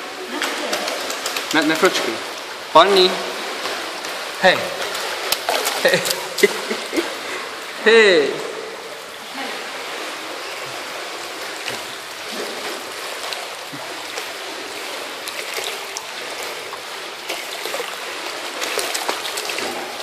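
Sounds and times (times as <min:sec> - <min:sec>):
water splashing and lapping: 0:00.0 - 0:20.0.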